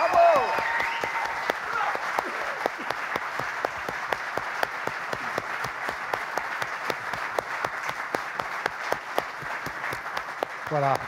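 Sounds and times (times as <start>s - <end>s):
audience applauding: 0.0s - 11.0s
nearby hand claps: 0.0s - 11.0s.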